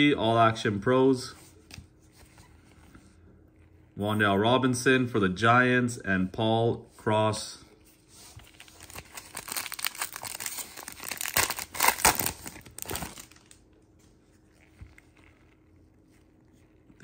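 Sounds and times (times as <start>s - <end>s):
foil wrapper tearing and crinkling: 8.5s - 13.6s.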